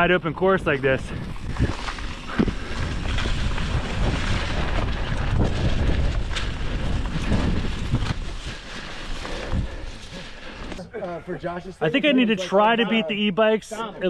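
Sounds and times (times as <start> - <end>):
wind rushing over microphone: 0.0 - 10.0
bike tyres rumbling on dirt trail: 0.0 - 12.2.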